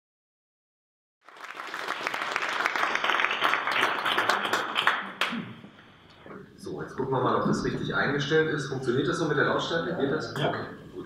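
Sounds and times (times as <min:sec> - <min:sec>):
audience applauding: 0:01.2 - 0:05.4.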